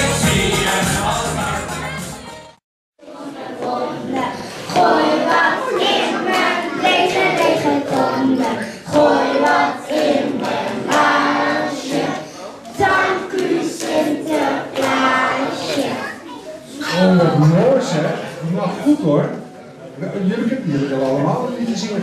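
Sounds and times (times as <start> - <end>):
children singing: 0.0 - 16.3.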